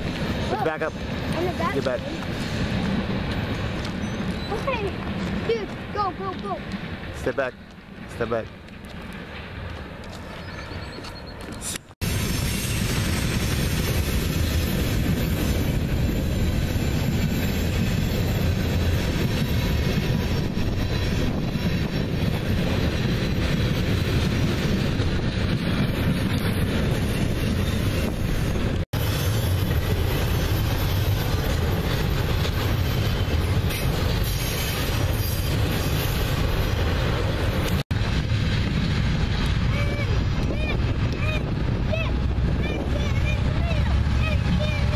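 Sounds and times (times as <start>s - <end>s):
freight train rolling past: 0.0s - 44.9s
steel wheels rumbling on rails: 0.0s - 44.9s.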